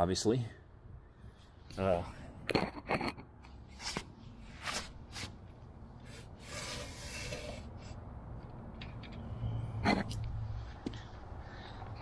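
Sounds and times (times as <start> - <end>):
scraping rub on concrete: 3.7 - 8.0.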